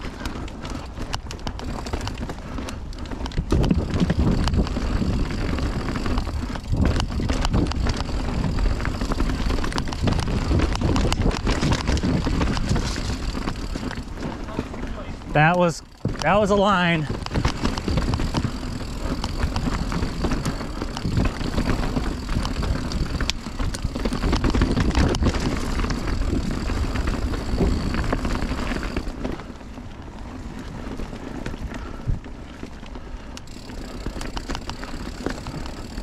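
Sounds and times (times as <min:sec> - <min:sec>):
bike clicking and rattling: 0:00.0 - 0:36.0
bike tyres on dirt: 0:00.0 - 0:36.0
wind rushing over microphone: 0:03.3 - 0:29.2.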